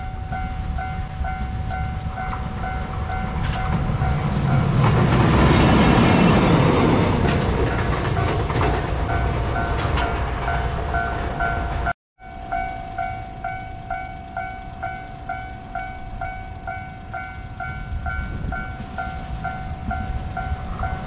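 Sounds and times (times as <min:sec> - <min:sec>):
level crossing bell ringing: 0:11.0 - 0:21.0.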